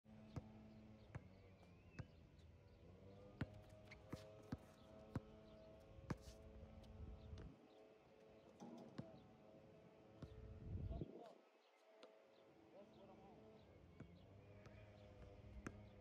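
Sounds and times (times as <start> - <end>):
basketball bouncing on hard court: 6.1 - 6.3, 15.6 - 15.9.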